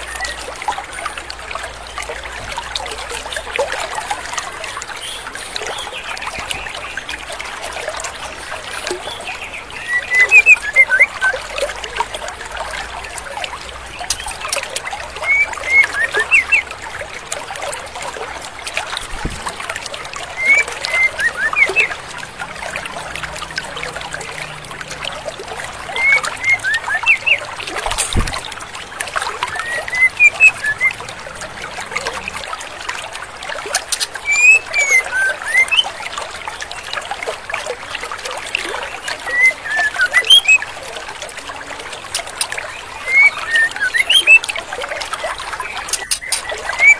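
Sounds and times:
stream rushing: 0:00.0 - 0:46.9
bird chirping in quick bursts: 0:34.3 - 0:35.8.

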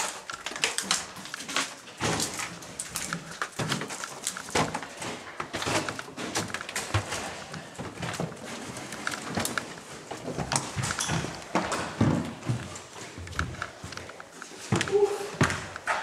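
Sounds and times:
footsteps crunching over debris: 0:00.0 - 0:15.8.

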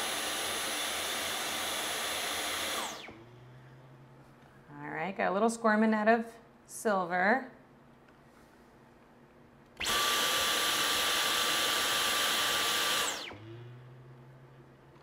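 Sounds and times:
vacuum cleaner running: 0:00.0 - 0:04.1, 0:09.8 - 0:14.0.

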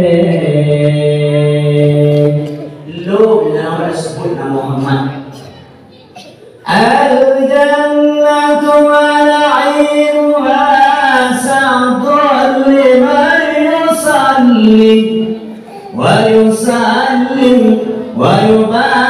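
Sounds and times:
man chanting into a microphone: 0:00.0 - 0:05.4, 0:06.6 - 0:19.0.

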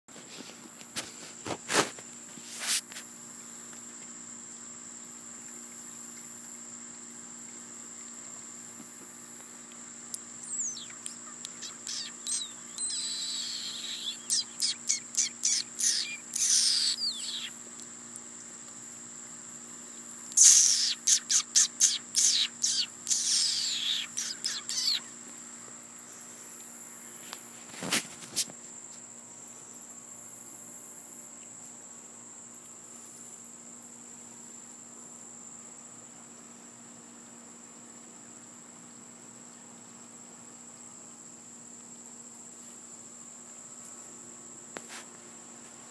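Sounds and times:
high insect drone: 0:00.1 - 0:45.9
high-pitched chirping calls: 0:10.4 - 0:17.6, 0:20.3 - 0:25.2.

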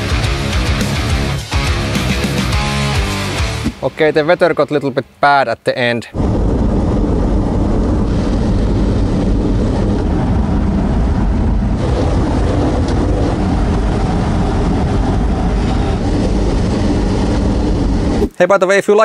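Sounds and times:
tyres and drivetrain rumbling: 0:06.2 - 0:18.3.

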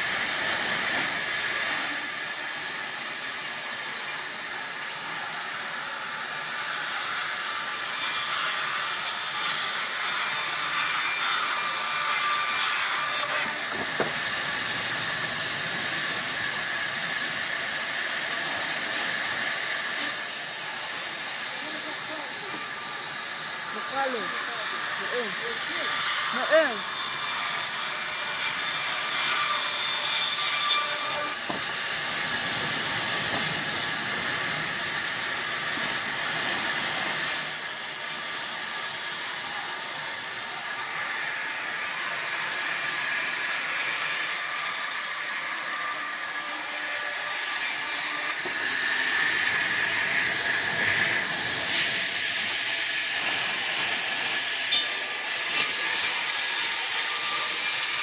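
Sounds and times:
band saw ripping a log: 0:53.0 - 0:58.0.

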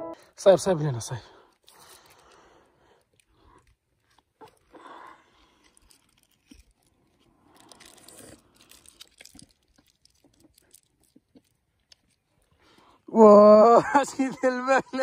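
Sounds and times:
foil wrapper crinkling: 0:01.5 - 0:12.8.

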